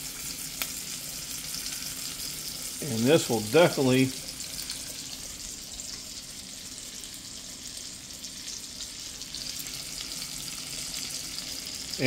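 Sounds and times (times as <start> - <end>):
meat sizzling in a skillet: 0.0 - 12.0.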